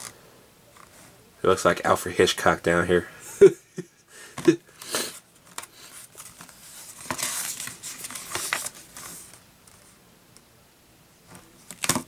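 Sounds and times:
paper pages rustling: 5.4s - 10.0s.

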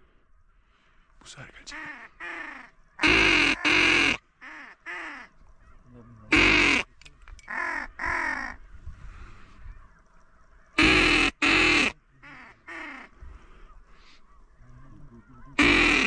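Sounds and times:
duck quacking: 1.8s - 5.3s, 6.3s - 6.9s, 10.8s - 13.1s, 15.2s - 16.0s.

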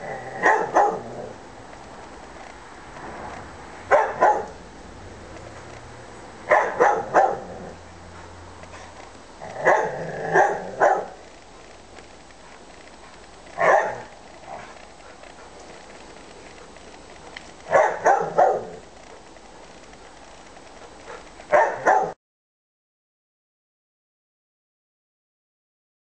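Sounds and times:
dog barking: 0.4s - 1.1s, 3.9s - 4.6s, 6.5s - 7.6s, 9.6s - 11.2s, 13.6s - 14.6s, 17.7s - 18.8s, 21.5s - 22.2s.

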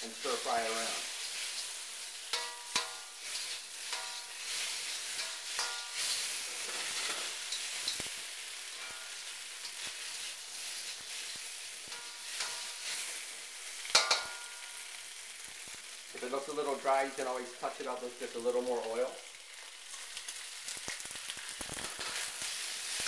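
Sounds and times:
beef sizzling in a wok: 0.0s - 23.0s
metal turner scraping a wok: 0.2s - 8.1s, 8.7s - 13.2s, 13.8s - 14.5s.

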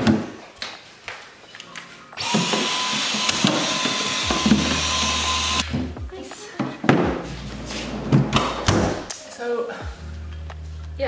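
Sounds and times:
cordless vacuum whining: 2.2s - 5.6s.

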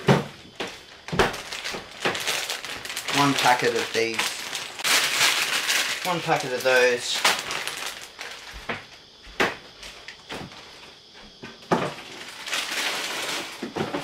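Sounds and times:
knocks and clatter in cabinet: 0.0s - 2.2s, 11.4s - 12.1s, 13.6s - 14.0s.

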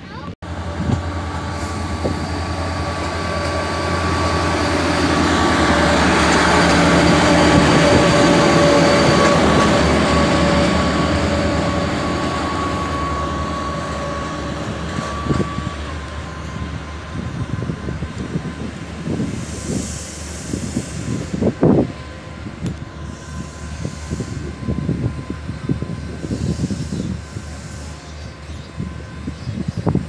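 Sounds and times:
diesel engine drone: 0.0s - 19.8s.

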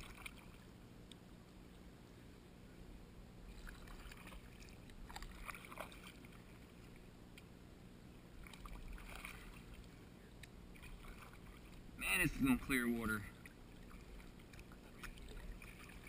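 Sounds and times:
paddle splashing in water: 0.0s - 0.6s, 3.5s - 6.9s, 8.4s - 10.0s, 10.7s - 11.8s, 13.4s - 16.0s.

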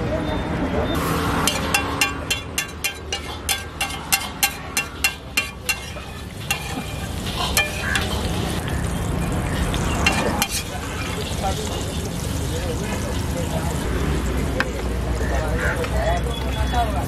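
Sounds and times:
metal spatula tapping iron pan: 1.4s - 8.7s, 10.0s - 10.7s
egg sizzling in oil: 1.5s - 13.7s.

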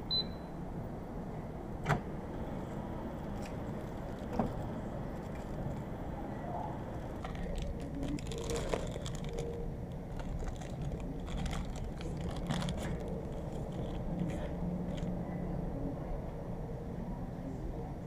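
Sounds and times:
low drone of ship engines: 0.0s - 18.0s
plastic film wrapper crinkling: 7.1s - 15.1s.

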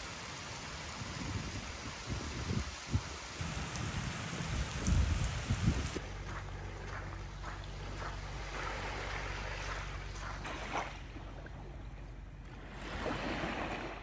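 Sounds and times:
water lapping: 0.0s - 14.0s
low steady hum: 3.2s - 13.1s.

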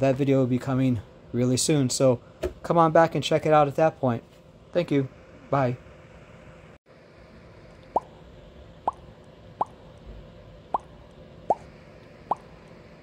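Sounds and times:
rising bloop pop effects: 7.9s - 8.2s, 10.7s - 10.9s, 12.3s - 12.5s.

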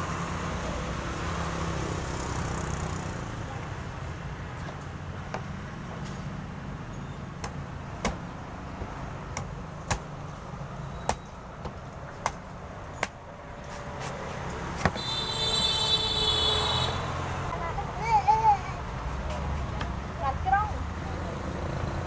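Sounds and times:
knife chopping coconut husk: 7.4s - 10.2s.

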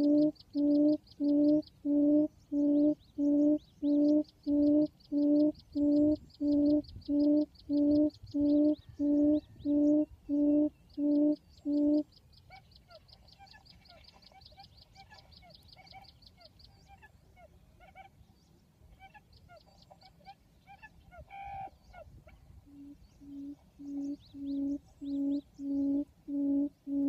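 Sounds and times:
bird hooting call: 0.0s - 12.6s, 19.0s - 27.0s.

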